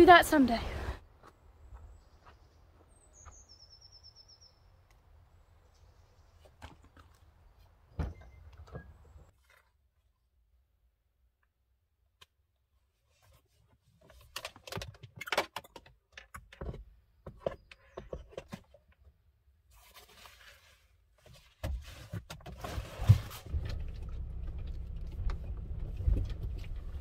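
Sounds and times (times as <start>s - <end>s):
car engine running: 23.4s - 27.0s.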